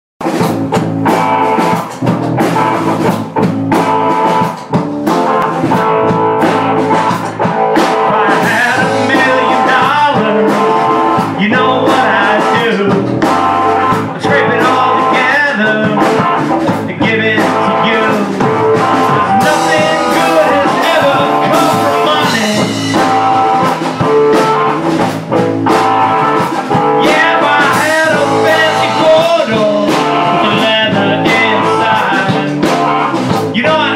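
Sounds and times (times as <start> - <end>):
drum kit: 0.2 - 33.9
electric guitars: 0.2 - 33.9
person singing: 6.9 - 24.6, 26.2 - 33.9.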